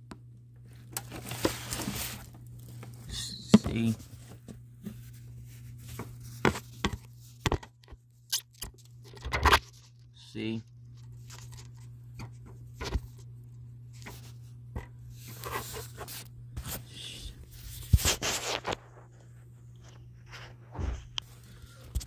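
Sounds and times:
steady low hum: 0.0 - 22.0
phone handling rubbing and rustling: 0.7 - 8.0, 10.8 - 13.2, 17.6 - 21.1.

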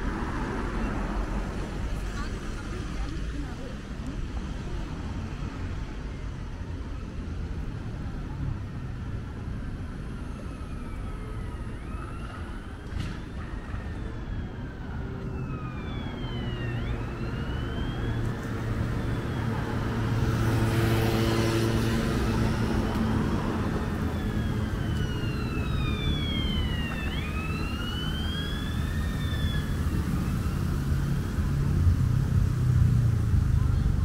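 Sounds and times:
city traffic rumble: 0.0 - 34.0
emergency siren wailing: 5.4 - 32.4.

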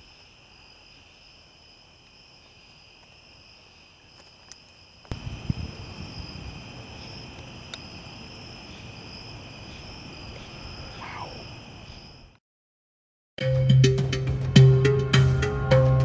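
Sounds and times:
night insects chirping: 0.0 - 12.4
thunder rumble: 5.1 - 11.8.

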